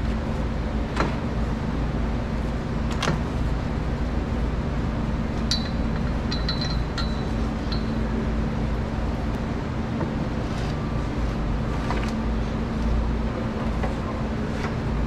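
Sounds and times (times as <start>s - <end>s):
steady low hum: 0.0s - 15.0s
metallic clinks of steel parts: 5.5s - 8.0s.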